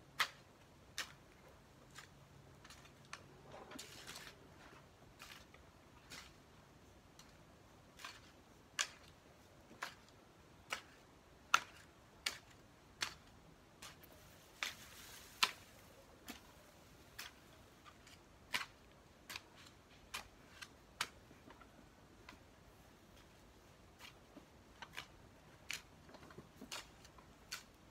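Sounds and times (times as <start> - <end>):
soft scraping rustle: 1.8 - 8.4, 13.8 - 18.3
hoe chopping soil: 7.2 - 21.3, 23.8 - 27.9.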